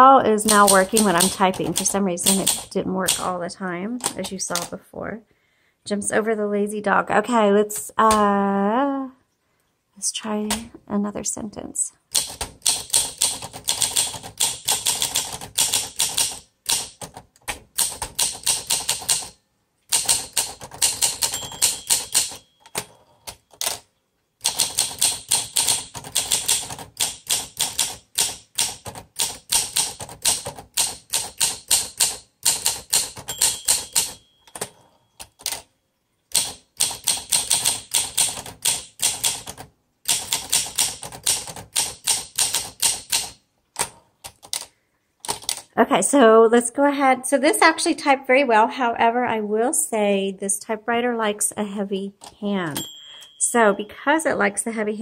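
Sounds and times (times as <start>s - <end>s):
typewriter keystrokes: 0.4s - 3.3s, 12.2s - 23.8s, 24.4s - 35.7s, 36.3s - 45.7s
typewriter margin bell ringing: 20.1s - 23.6s, 33.0s - 35.4s, 52.7s - 53.8s.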